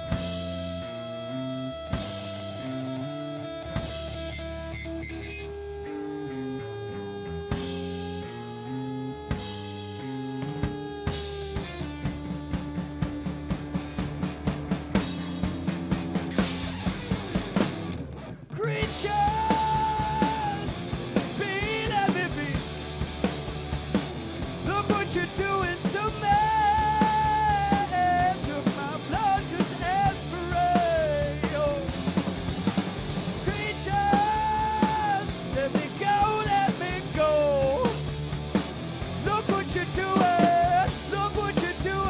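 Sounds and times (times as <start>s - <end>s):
drum kit: 0.0s - 6.0s, 7.3s - 42.0s
electric bass: 0.0s - 42.0s
electric guitar: 0.0s - 42.0s
male singer: 18.5s - 22.7s, 24.6s - 31.9s, 33.4s - 38.0s, 39.2s - 42.0s.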